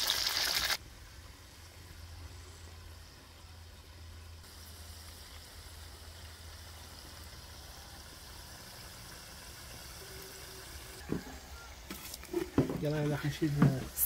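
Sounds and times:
potato sticks sizzling in oil: 0.0s - 14.0s.

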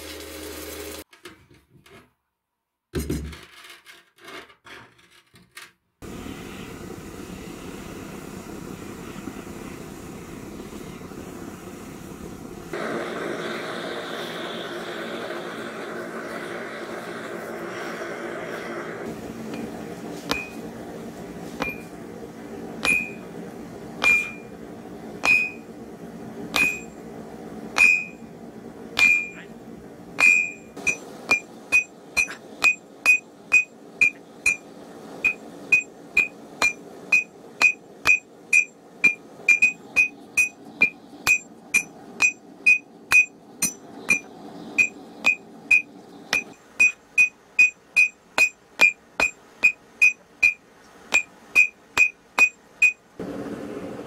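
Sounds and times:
hammer striking iron on anvil: 20.3s - 20.6s, 21.6s - 21.9s, 22.8s - 23.3s, 24.0s - 24.5s, 25.2s - 25.7s, 26.5s - 27.0s, 27.8s - 28.2s, 29.0s - 29.4s, 30.2s - 34.6s, 35.2s - 53.0s.

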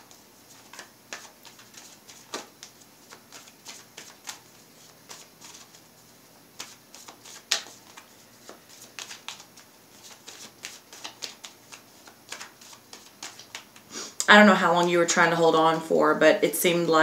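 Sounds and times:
cards being shuffled: 0.1s - 5.8s, 6.6s - 13.9s.

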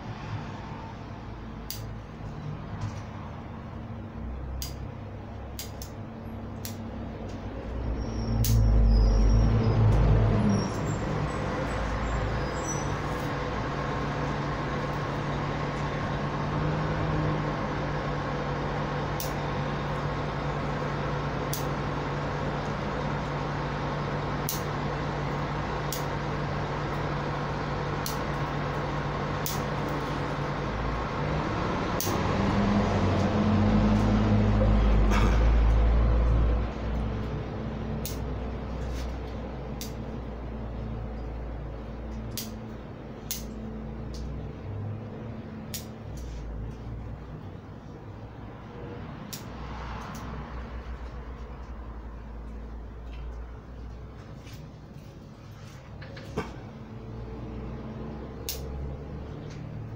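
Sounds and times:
low motor rumble: 0.0s - 59.9s
pruning scissors snipping: 4.6s - 4.8s, 5.6s - 6.0s, 6.6s - 6.9s, 8.4s - 8.7s, 19.2s - 19.4s, 21.5s - 21.7s, 24.5s - 24.7s, 25.9s - 26.1s, 29.4s - 30.0s, 32.0s - 32.2s, 38.0s - 38.3s, 39.8s - 40.0s, 42.2s - 42.6s, 43.3s - 44.3s, 45.7s - 46.3s, 49.3s - 50.3s, 58.4s - 58.9s.

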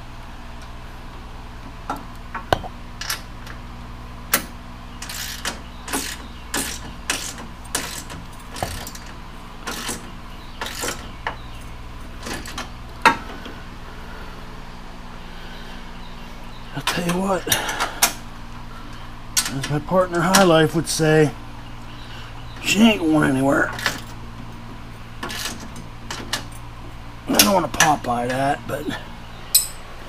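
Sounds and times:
fan humming: 0.0s - 30.0s.

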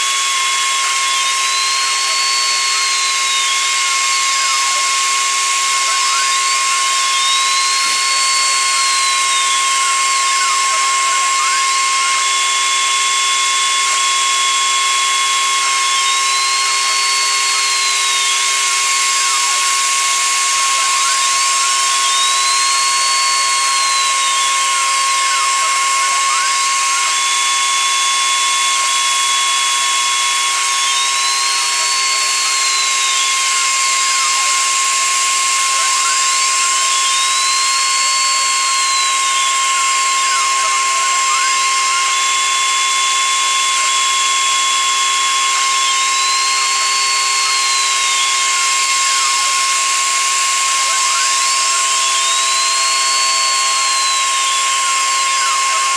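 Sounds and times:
router spindle whine with cutting: 0.0s - 55.9s
stepper motors whining: 0.0s - 55.9s.

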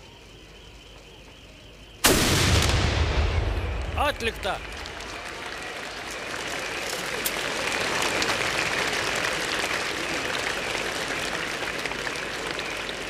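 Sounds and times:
crowd applauding: 4.0s - 13.0s.

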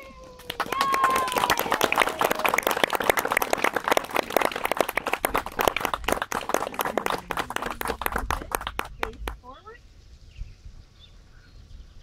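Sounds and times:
crowd clapping: 0.2s - 9.4s.

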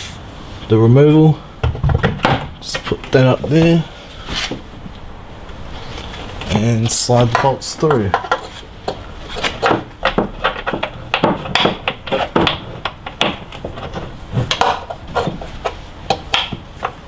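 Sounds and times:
metallic clicks and knocks: 7.3s - 17.0s.

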